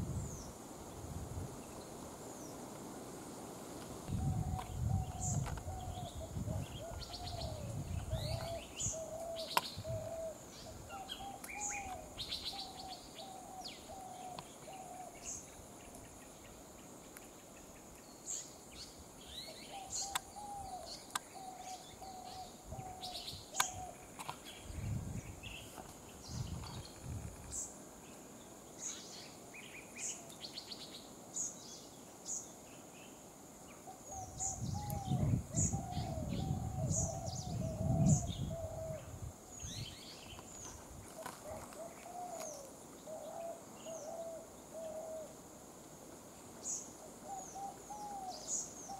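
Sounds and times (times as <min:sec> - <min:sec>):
birds chirping: 0:04.3 - 0:28.2.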